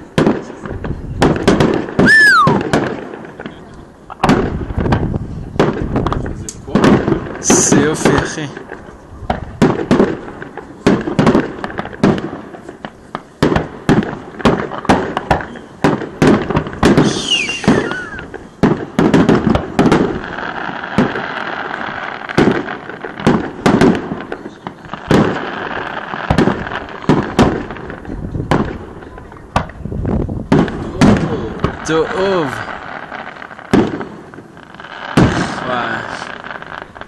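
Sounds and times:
fireworks bursting with sharp bangs: 0.0s - 37.0s
fireworks crackling: 0.0s - 37.0s
falling firework whistle: 2.0s - 2.8s, 16.9s - 18.4s.

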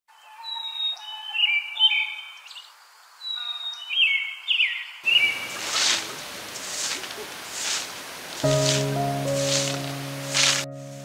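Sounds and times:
songbird singing: 0.1s - 11.0s
hissy rustling: 5.1s - 11.0s.

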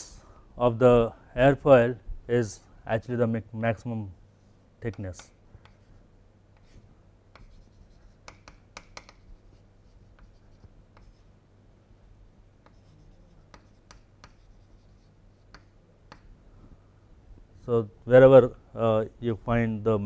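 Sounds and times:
chalk tapping on board: 4.9s - 6.0s, 6.6s - 11.3s, 12.6s - 16.3s
chalk scratching on chalkboard: 5.2s - 6.0s, 6.6s - 11.3s, 12.6s - 16.2s.

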